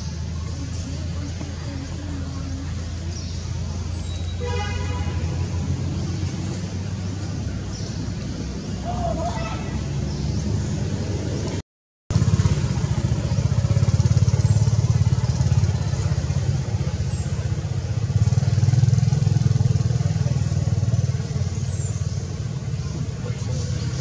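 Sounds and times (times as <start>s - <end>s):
engine running: 9.8s - 24.0s.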